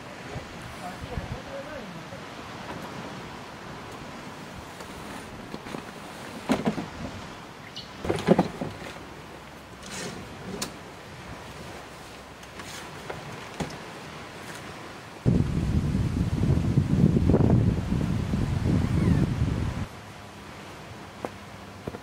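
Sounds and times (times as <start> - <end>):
surf: 0.0 - 22.0
wind: 0.0 - 22.0
rooftop tent clunks and rattles: 4.8 - 7.3, 7.9 - 11.8, 12.4 - 14.8.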